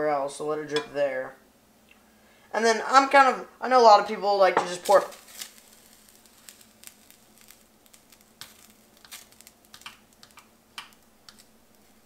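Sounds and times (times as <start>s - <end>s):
plastic utensil clicks and taps: 9.7s - 11.5s.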